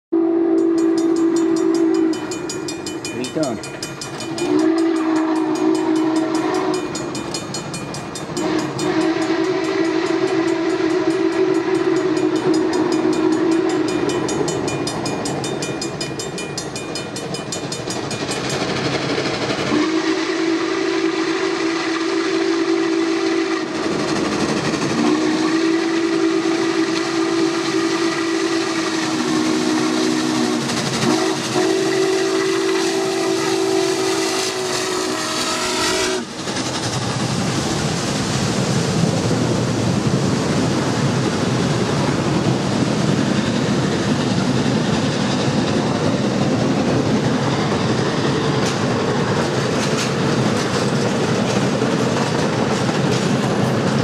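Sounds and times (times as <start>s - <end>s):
steam locomotive whistle blasts: 0.1s - 2.8s, 4.2s - 7.2s, 8.3s - 14.6s, 19.7s - 24.2s, 24.8s - 36.4s
train running noise: 0.2s - 54.0s.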